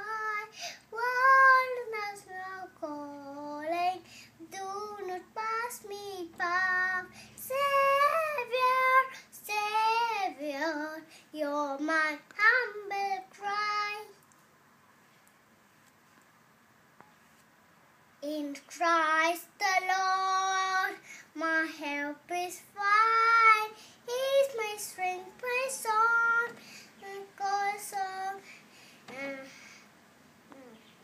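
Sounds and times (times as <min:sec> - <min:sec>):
girl singing a hymn solo: 0:00.0 - 0:14.2, 0:18.2 - 0:29.9.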